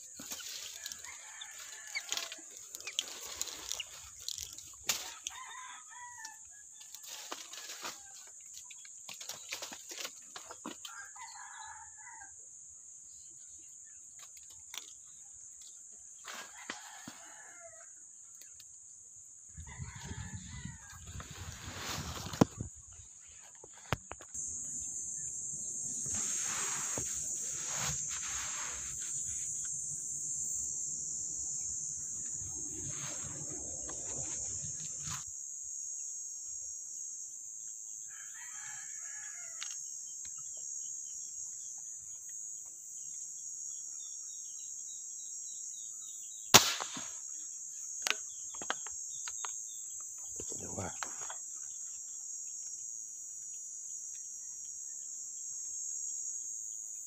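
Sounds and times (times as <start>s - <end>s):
brush and leaves rustling: 0.0s - 6.2s, 6.8s - 11.0s, 16.2s - 17.5s, 19.9s - 24.7s, 25.5s - 29.8s, 32.1s - 35.2s
high insect buzz: 0.0s - 6.3s, 13.1s - 57.0s
rooster crowing: 0.8s - 2.5s, 5.1s - 6.7s, 10.9s - 12.4s, 16.4s - 17.9s, 19.5s - 22.3s, 38.1s - 39.7s
air gun shot: 46.6s - 47.2s.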